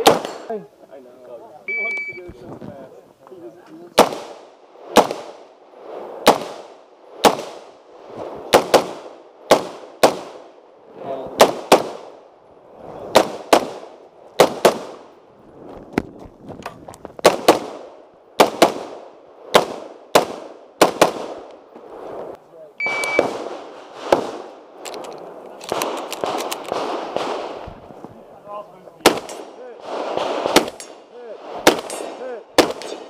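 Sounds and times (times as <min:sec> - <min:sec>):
rifle shots with echo: 0:00.0 - 0:00.5, 0:04.0 - 0:05.5, 0:06.2 - 0:07.8, 0:08.4 - 0:10.6, 0:11.4 - 0:12.2, 0:13.1 - 0:15.1, 0:17.2 - 0:21.5, 0:22.8 - 0:27.7, 0:29.0 - 0:33.0.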